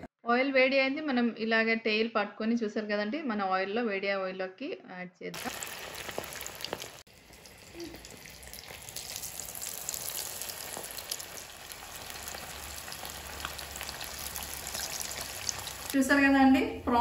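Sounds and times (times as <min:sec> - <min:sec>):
prawns deep-frying in oil: 0:05.4 - 0:16.0.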